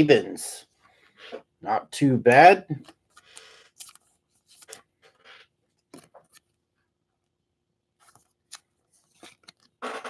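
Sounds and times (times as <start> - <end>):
trading cards rustling and sliding: 2.8 - 6.5, 8.0 - 10.0.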